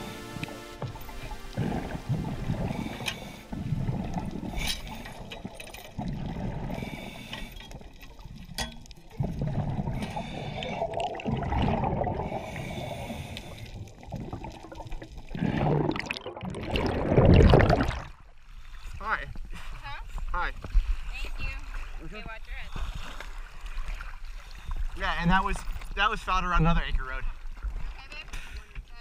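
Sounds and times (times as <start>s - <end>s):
underwater bubbles gurgling: 0.0s - 18.4s.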